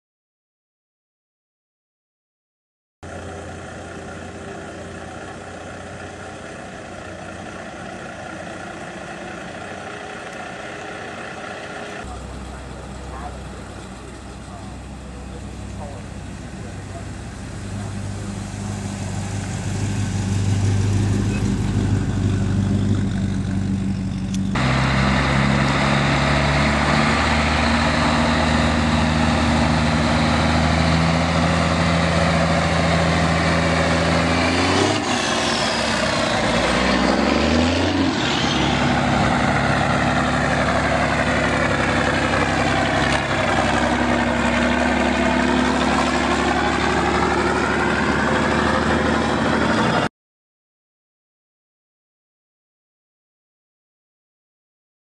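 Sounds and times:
truck engines driving past: 3.0s - 50.1s.

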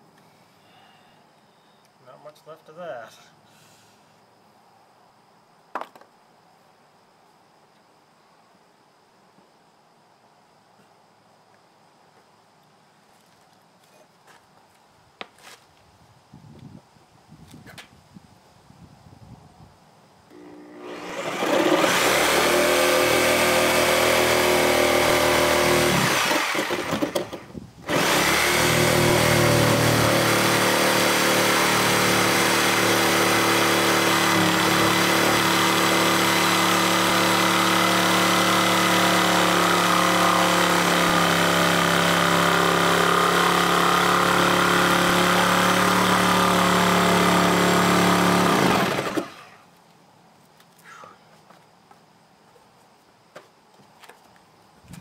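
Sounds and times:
reciprocating saw cutting wood: 20.3s - 49.6s.

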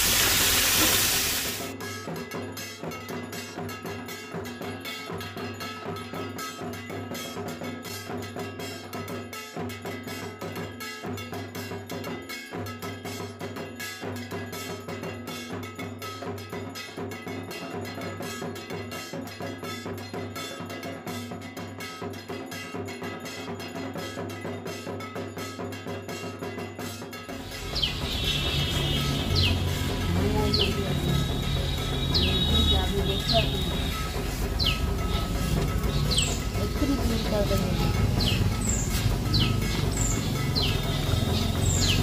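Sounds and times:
fast tapping beat: 27.4s - 42.0s.

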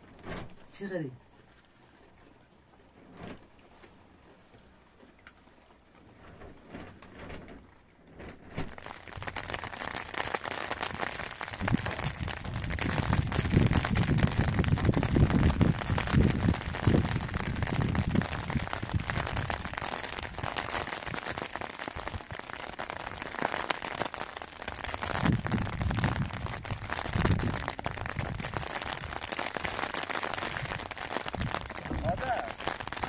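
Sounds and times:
rain pattering: 0.0s - 3.0s, 3.6s - 33.0s
low rumbling: 30.5s - 33.0s.

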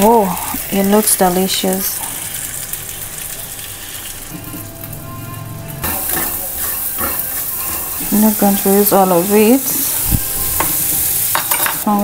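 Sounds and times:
onions sizzling in oil: 0.0s - 12.0s
soft background music: 2.9s - 12.0s.

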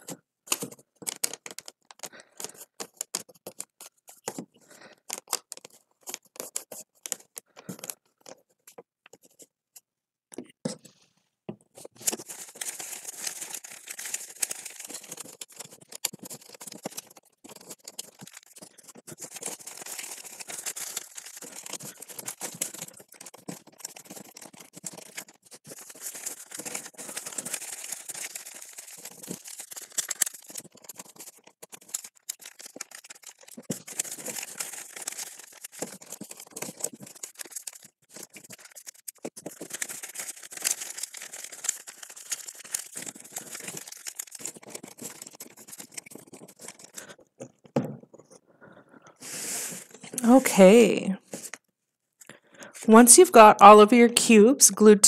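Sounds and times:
paper rustling and crinkling: 0.0s - 9.5s, 11.8s - 48.4s, 49.2s - 51.6s
glue stick rubbing on paper: 5.1s - 7.4s, 12.0s - 47.0s.

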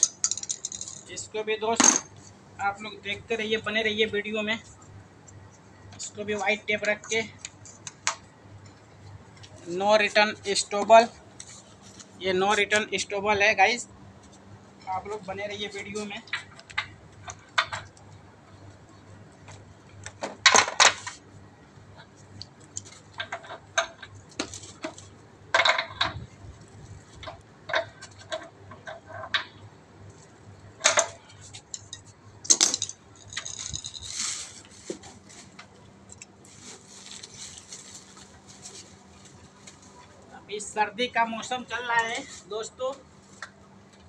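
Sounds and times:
wrench clinking against metal fittings: 0.0s - 1.1s.

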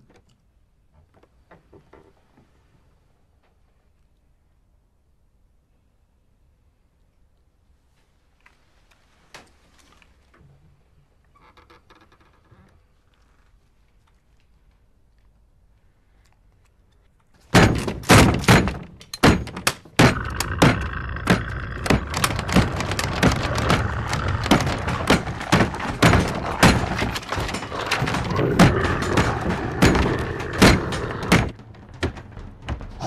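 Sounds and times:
banging on wooden door: 17.5s - 33.0s.

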